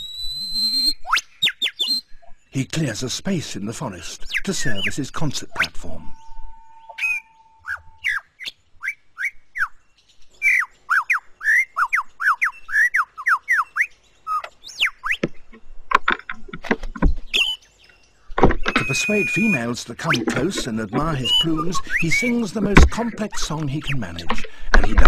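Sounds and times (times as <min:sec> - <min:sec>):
lyrebird whistled song: 0:00.0 - 0:02.6, 0:04.2 - 0:15.3, 0:17.3 - 0:23.1.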